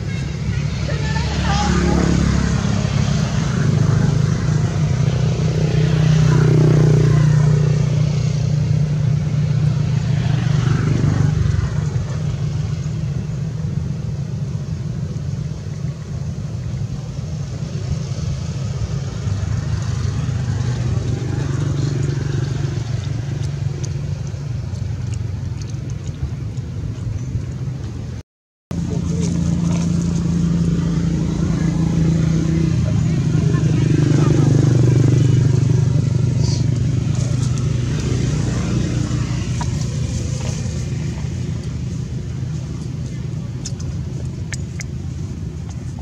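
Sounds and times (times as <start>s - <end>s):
faint voices: 0.0s - 8.4s, 28.8s - 46.0s
engine running with low hum: 0.0s - 46.0s.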